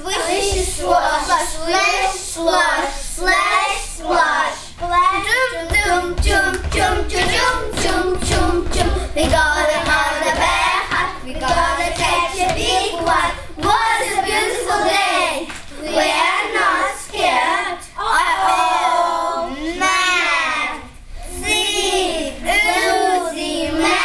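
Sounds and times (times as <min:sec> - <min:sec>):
children singing and chanting: 0:00.0 - 0:24.0
feet stamping on wooden stage: 0:04.8 - 0:14.0.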